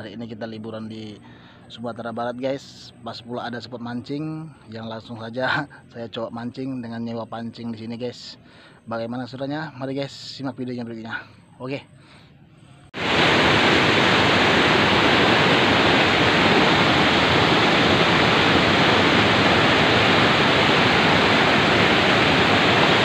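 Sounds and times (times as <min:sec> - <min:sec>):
river rushing over boulders: 0:13.0 - 0:23.0.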